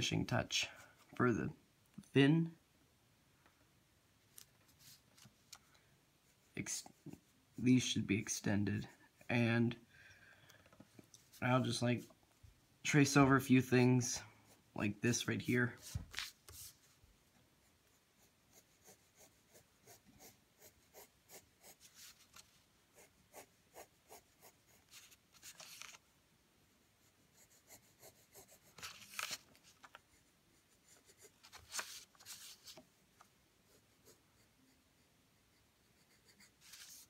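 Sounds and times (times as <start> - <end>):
pencil scratching on paper: 17.8 - 22.2, 23.0 - 25.6, 27.0 - 29.0, 30.1 - 31.6, 33.7 - 37.0.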